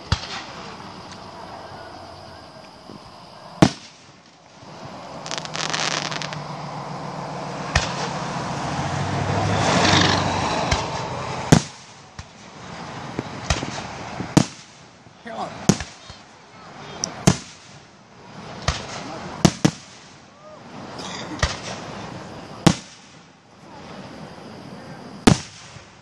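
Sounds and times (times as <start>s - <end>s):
fireworks bangs: 0.0s - 8.8s, 9.6s - 16.2s, 17.2s - 26.0s
fireworks crackling: 0.0s - 8.8s, 9.6s - 26.0s
rushing firework: 0.0s - 26.0s.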